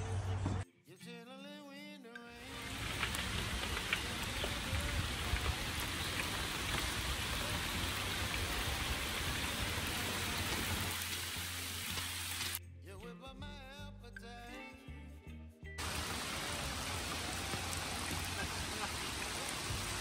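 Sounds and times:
heavy rain on lake: 0:02.4 - 0:12.6, 0:15.8 - 0:20.0.

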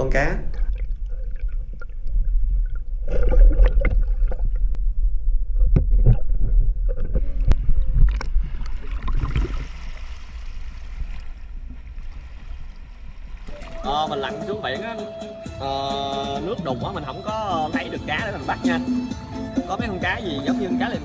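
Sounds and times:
low rumble of moving water: 0:00.0 - 0:14.1
seawater sloshing and splashing: 0:07.1 - 0:14.5.

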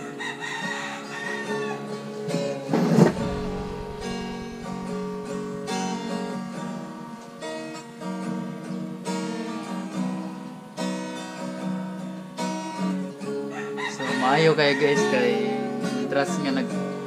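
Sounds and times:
acoustic guitar strumming chords: 0:01.7 - 0:13.5.

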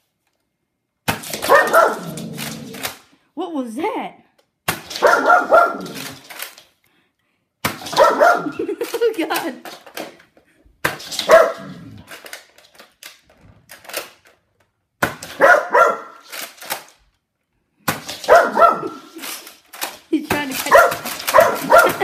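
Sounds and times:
dog barking: 0:01.4 - 0:02.2, 0:05.0 - 0:06.0, 0:07.9 - 0:08.7, 0:11.2 - 0:11.8, 0:15.4 - 0:16.2, 0:18.2 - 0:19.1, 0:20.7 - 0:22.0.

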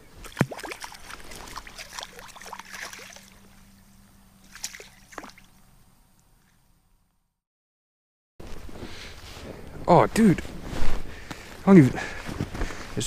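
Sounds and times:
water sloshing and splashing: 0:00.1 - 0:03.7, 0:04.4 - 0:05.6
water drips: 0:00.2 - 0:03.5.

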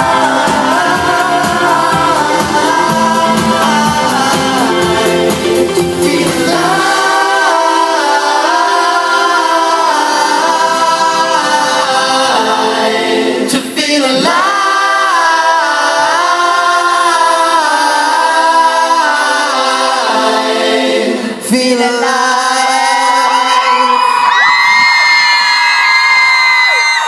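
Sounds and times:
audience screaming and cheering: 0:00.0 - 0:12.4, 0:21.8 - 0:27.0
man singing into microphone: 0:00.0 - 0:20.4, 0:21.0 - 0:24.5
crowd singing along: 0:00.0 - 0:24.5.

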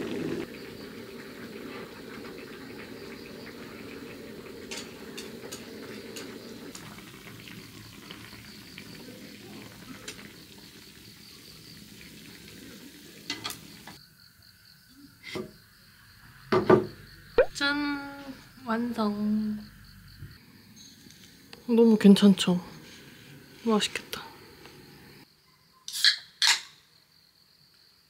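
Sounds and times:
stew simmering in a pan: 0:00.0 - 0:14.1.

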